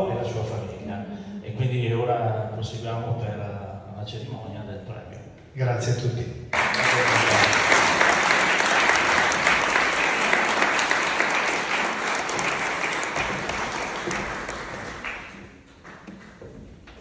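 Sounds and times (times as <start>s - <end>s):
audience applauding: 6.6s - 16.6s.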